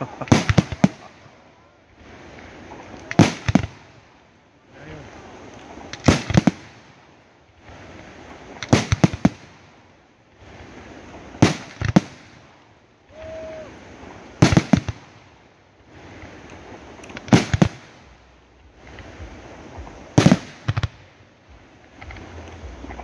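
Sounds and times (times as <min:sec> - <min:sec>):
firework crackling hiss: 0:00.0 - 0:01.3, 0:01.9 - 0:23.0
firework shells bursting: 0:00.0 - 0:01.3, 0:02.4 - 0:04.0, 0:05.5 - 0:07.0, 0:08.2 - 0:09.8, 0:11.3 - 0:12.5, 0:14.4 - 0:15.3, 0:16.3 - 0:18.1, 0:19.8 - 0:21.1.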